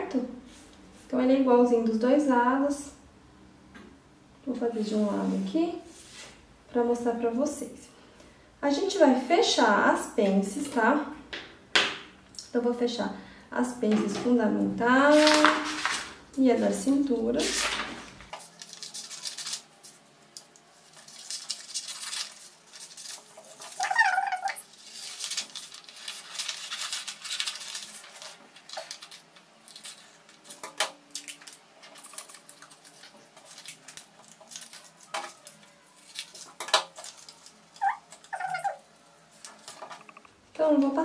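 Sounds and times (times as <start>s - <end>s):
paper crinkling: 15.0s - 16.2s, 17.4s - 40.2s.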